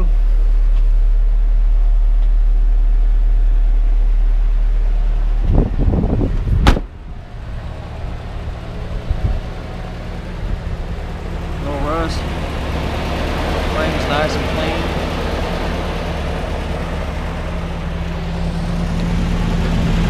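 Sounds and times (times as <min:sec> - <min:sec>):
truck engine idling: 0:00.0 - 0:20.0
car door slamming shut: 0:06.4 - 0:06.9.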